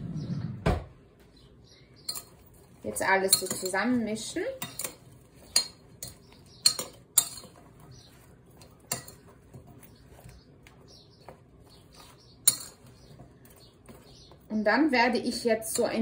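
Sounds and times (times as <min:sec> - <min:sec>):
vegetable pieces rustling: 0:02.0 - 0:16.0
clinks against glass bowl: 0:02.1 - 0:02.4, 0:04.6 - 0:07.6.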